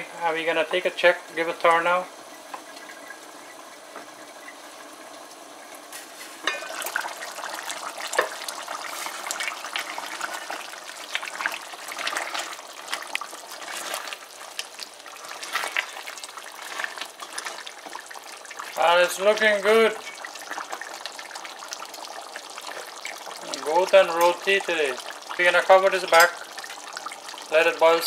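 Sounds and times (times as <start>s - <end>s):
curry bubbling in a pot: 1.9s - 28.0s
metal pot lid clink: 6.4s - 6.8s
spatula stirring thick curry: 11.1s - 18.7s.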